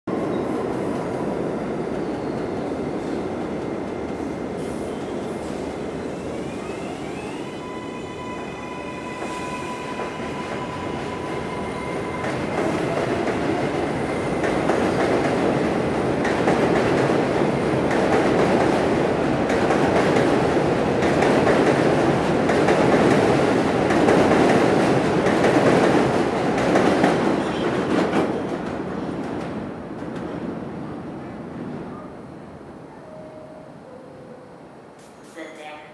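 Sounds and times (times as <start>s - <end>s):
subway train propulsion whine: 0.1s - 35.4s
train wheels rumbling on track: 8.7s - 32.0s.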